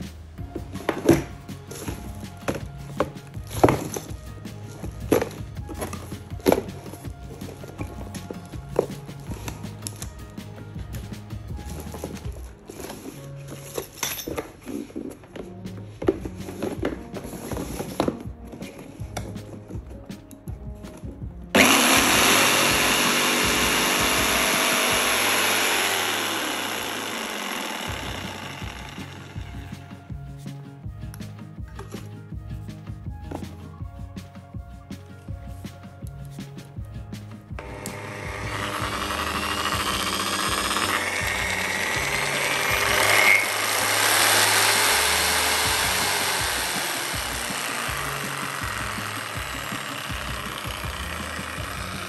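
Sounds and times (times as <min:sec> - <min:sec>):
jigsaw running: 0:03.0 - 0:10.4, 0:21.6 - 0:29.8, 0:37.6 - 0:52.0.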